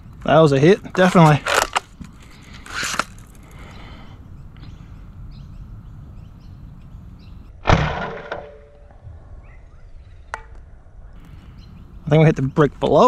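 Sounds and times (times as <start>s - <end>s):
spring-piston blaster shot: 7.6s - 9.0s.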